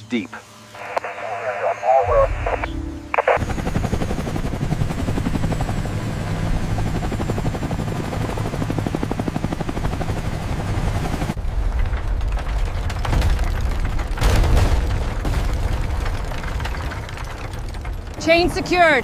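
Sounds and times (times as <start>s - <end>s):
helicopter rotor blades chopping: 1.8s - 19.0s.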